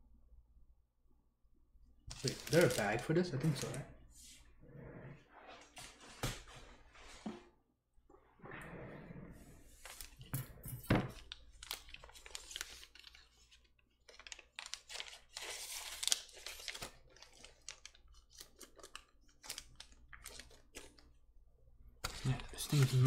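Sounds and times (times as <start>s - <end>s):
plastic bag crinkling: 2.1s - 3.9s, 11.0s - 21.1s, 22.1s - 23.0s.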